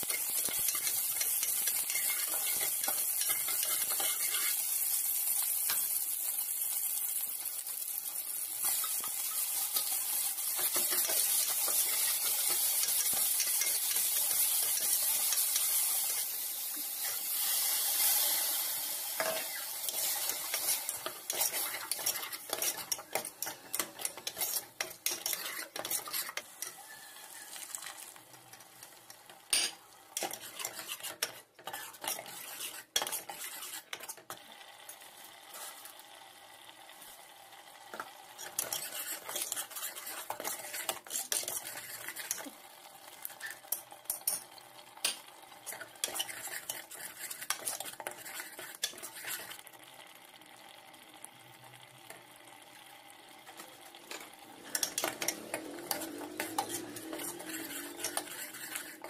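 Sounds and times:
metal ladle scraping a pot: 19.2s - 27.7s, 29.5s - 34.3s, 38.4s - 42.4s, 54.1s - 59.0s.

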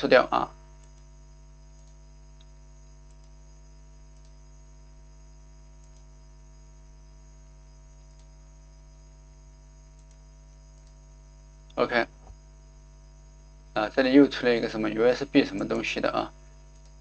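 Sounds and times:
low electrical hum: 0.0s - 17.0s
computer mouse clicks: 0.8s - 4.4s, 5.7s - 6.2s, 7.9s - 8.5s, 9.8s - 12.4s, 16.7s - 17.0s.

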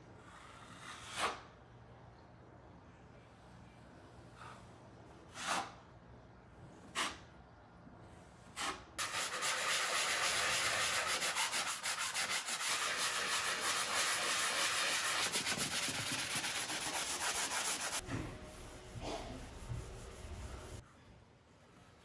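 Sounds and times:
hand-sanding drywall: 8.5s - 20.8s.

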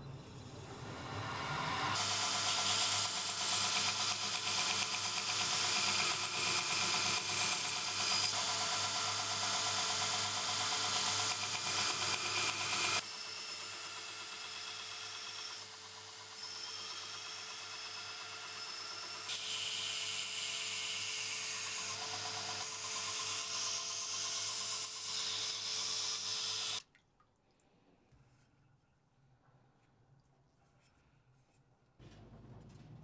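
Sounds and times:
belt grinder grinding steel: 1.8s - 26.8s.

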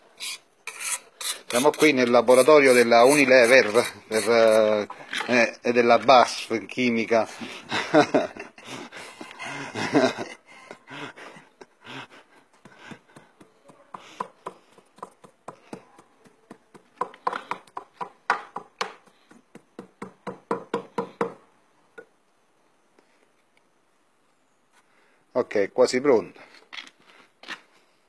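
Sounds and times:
pestle pounding in a mortar: 12.6s - 21.4s.

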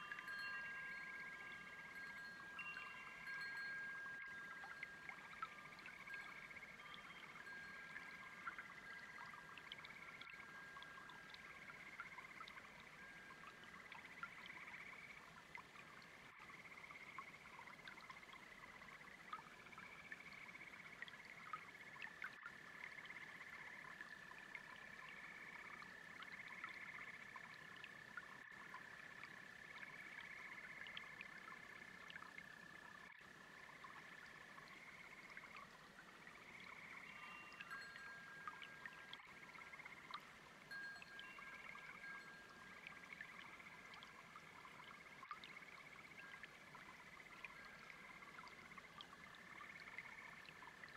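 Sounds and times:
brook water trickling: 0.0s - 50.9s
frogs and toads trilling: 0.0s - 50.9s.

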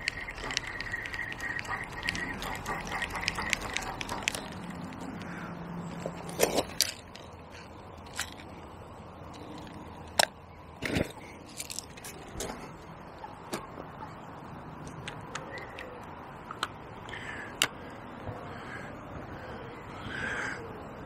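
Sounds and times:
fishing reel whirring: 0.0s - 4.6s
groundbait scraping and crunching: 0.0s - 12.8s.

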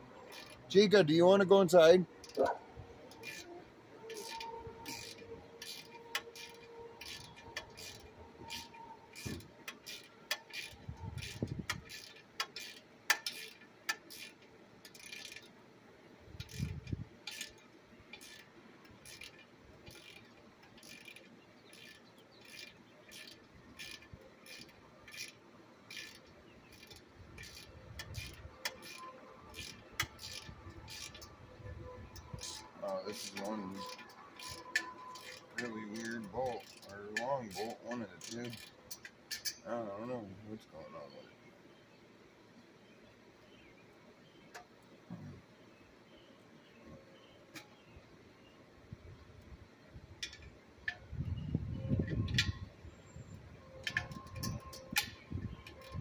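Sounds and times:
ratchet wrench clicking: 0.2s - 0.7s, 3.1s - 15.5s, 16.3s - 31.4s, 32.0s - 36.9s, 37.5s - 39.6s, 50.2s - 51.1s, 53.8s - 56.0s.

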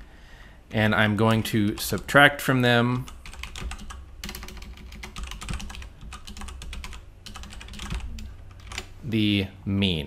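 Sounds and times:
computer keyboard typing: 1.3s - 2.2s, 3.0s - 8.9s.

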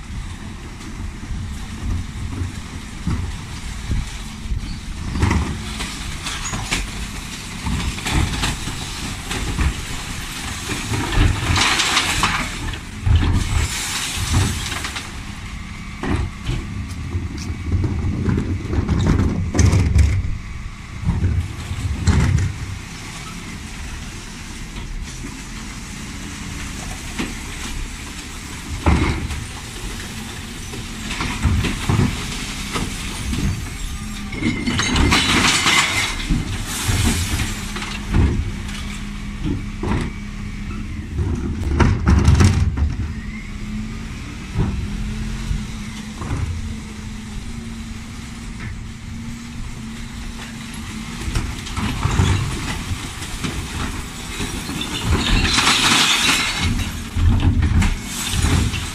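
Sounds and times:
bin lorry engine running: 0.0s - 58.9s
recycling crashing into hopper: 30.4s - 38.9s, 51.4s - 58.9s.

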